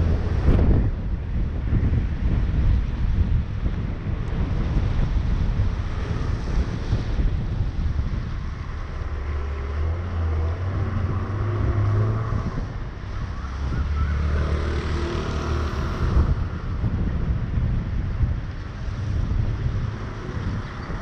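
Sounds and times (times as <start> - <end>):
vehicle rumble: 0.0 - 21.0
wind buffeting microphone: 0.0 - 21.0
tyres hissing on wet road: 4.4 - 17.0.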